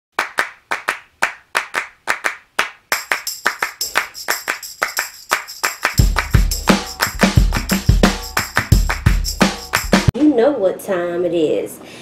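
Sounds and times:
handclap beat: 0:00.2 - 0:10.1
jingling tambourine: 0:02.9 - 0:10.0.

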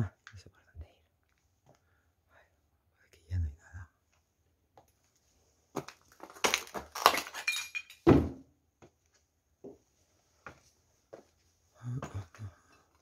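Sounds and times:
broken glass crunching and clinking: 0:06.2 - 0:08.1
heavy thud: 0:08.1 - 0:08.4.

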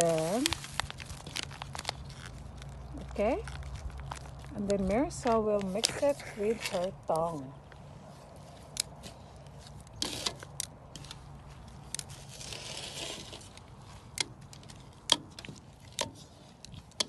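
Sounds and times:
scraping rustle in bowl: 0:12.2 - 0:13.5.

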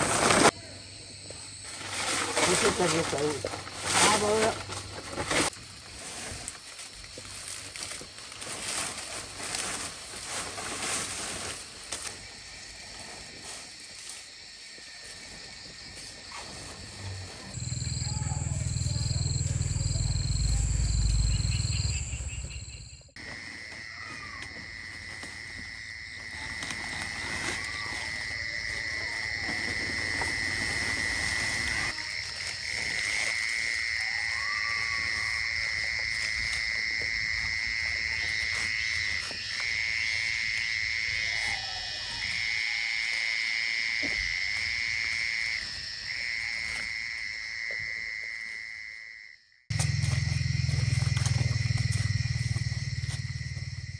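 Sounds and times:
lower frog calls: 0:17.5 - 0:25.0
frogs trilling: 0:17.5 - 0:53.9.

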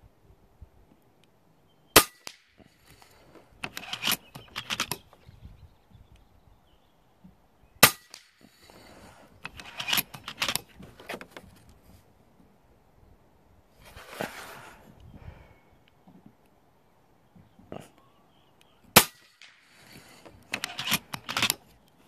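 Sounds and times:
air rifle shot crack: 0:02.0 - 0:02.8, 0:07.8 - 0:08.6, 0:18.9 - 0:20.0
mechanical clicks and rattles: 0:20.4 - 0:21.6.

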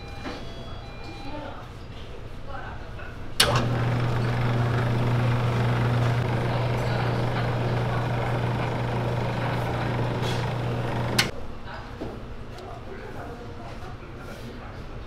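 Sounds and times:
noodle machine motor hum: 0:03.4 - 0:11.3
rollers whirring: 0:03.4 - 0:11.3.

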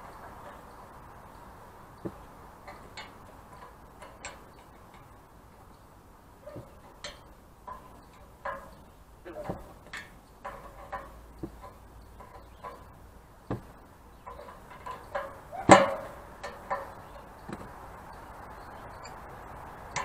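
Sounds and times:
wrench clicking on metal pipes: 0:06.7 - 0:18.2
loud metallic clank: 0:13.5 - 0:17.7.

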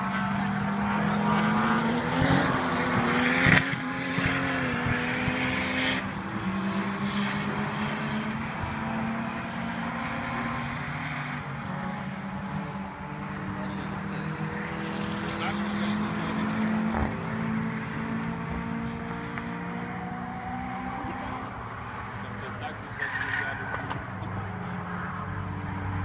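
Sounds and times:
distant racing car engines: 0:00.0 - 0:26.0.

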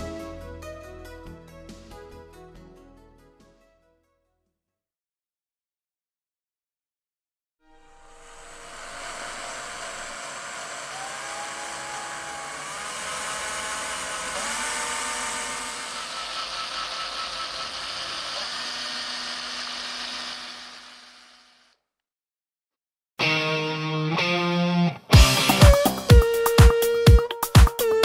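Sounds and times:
small motor whining: 0:07.7 - 0:21.8.

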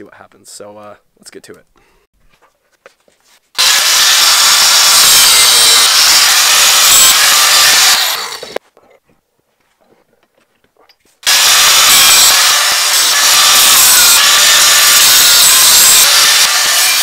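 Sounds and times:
angle grinder on steel: 0:03.6 - 0:08.6, 0:11.2 - 0:17.0.

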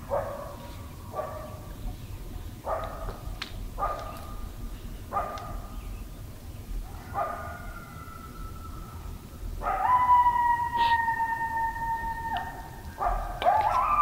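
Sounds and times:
coyotes barking and yipping: 0:00.0 - 0:14.0
coyotes howling: 0:06.8 - 0:14.0.

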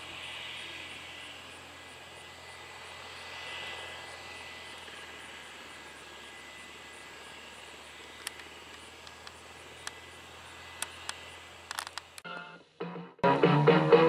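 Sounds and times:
helicopter hum with high whine: 0:00.0 - 0:12.8
sharp clicks: 0:08.2 - 0:10.0, 0:10.8 - 0:12.2.

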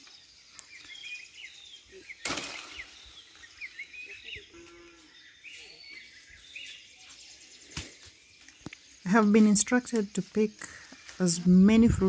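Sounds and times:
birds chirping: 0:00.0 - 0:12.0
branch cracking: 0:02.2 - 0:03.5.

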